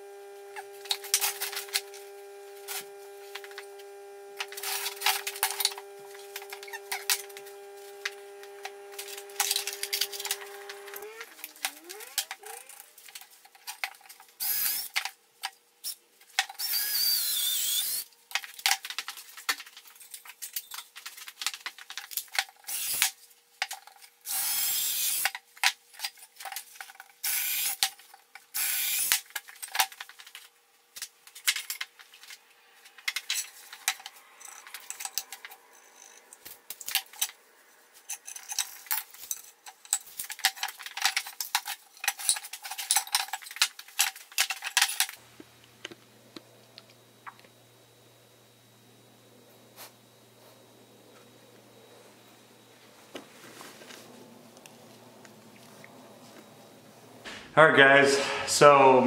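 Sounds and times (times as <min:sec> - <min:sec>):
cordless drill boring into wood: 0:14.4 - 0:14.9, 0:16.6 - 0:18.0, 0:22.7 - 0:23.1, 0:24.3 - 0:25.3, 0:27.2 - 0:27.8, 0:28.6 - 0:29.2.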